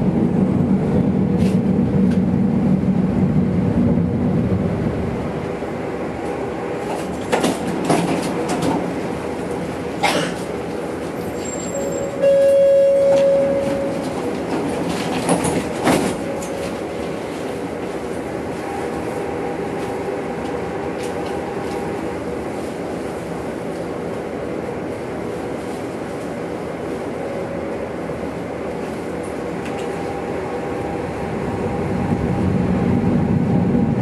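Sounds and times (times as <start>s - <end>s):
tram running hum: 0.0s - 34.0s
tram running gear clicks: 6.2s - 9.6s, 13.1s - 16.8s, 29.2s - 30.0s
loud pitched tone: 12.1s - 14.0s.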